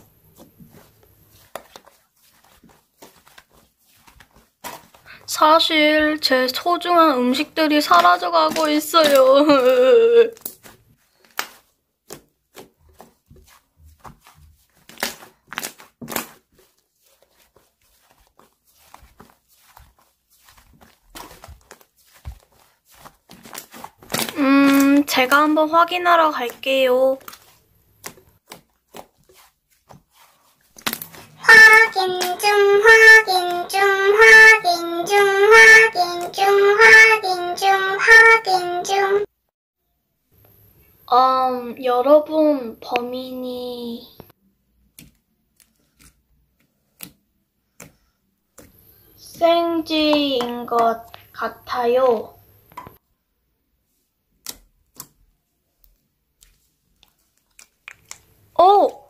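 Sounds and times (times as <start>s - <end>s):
high voice singing: 31.3s - 39.3s.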